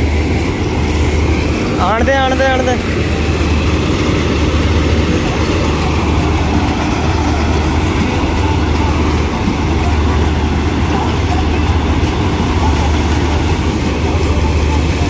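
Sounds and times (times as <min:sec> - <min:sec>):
combine harvester engine drone: 0:00.0 - 0:15.0.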